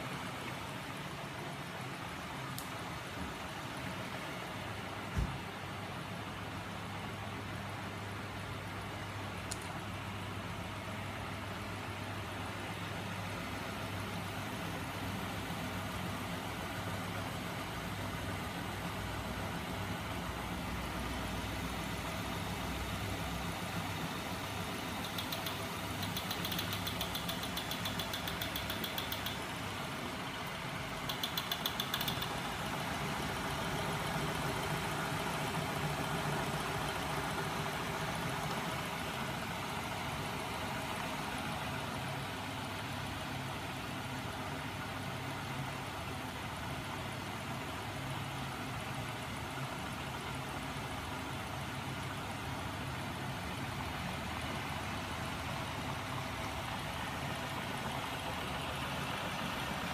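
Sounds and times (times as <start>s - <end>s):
mechanical whir of spinning wheels: 20.4s - 43.0s
fast high ticking rattle: 24.8s - 29.8s, 30.4s - 38.9s.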